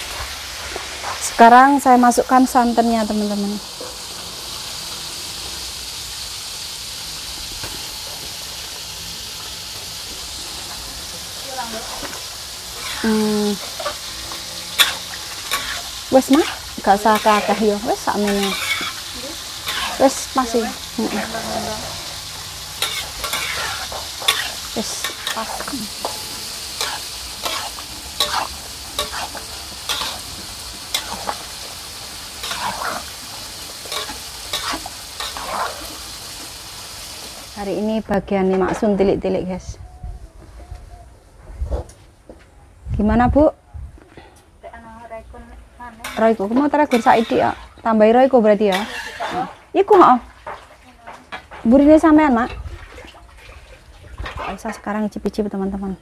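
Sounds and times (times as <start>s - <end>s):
hissing hot wok: 0.0s - 38.1s, 45.8s - 50.0s
liquid sloshing: 52.5s - 54.8s.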